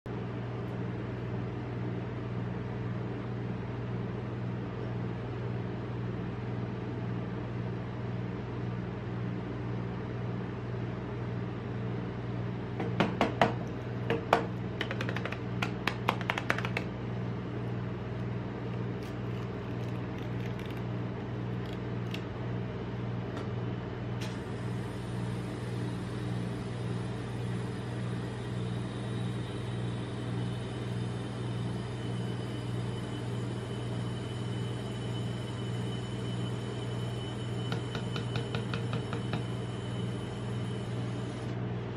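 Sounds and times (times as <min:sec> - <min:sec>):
machine electric hum: 0:00.1 - 0:41.9
plastic cup clicks and crackles: 0:14.8 - 0:16.9.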